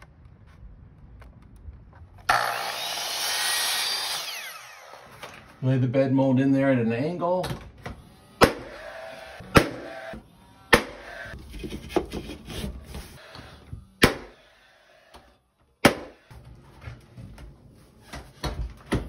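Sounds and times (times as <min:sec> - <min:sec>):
nail gun firing: 0:08.4 - 0:11.1, 0:14.0 - 0:14.4, 0:15.8 - 0:16.2.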